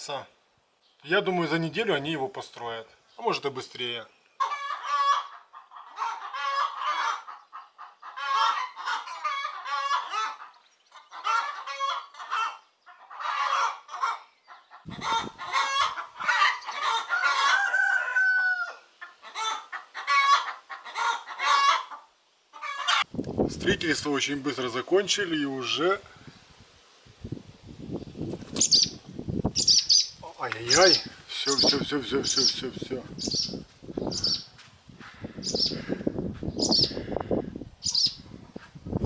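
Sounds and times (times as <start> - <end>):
chickens clucking: 4.3 - 23.1
rooster crowing: 15.2 - 20.5.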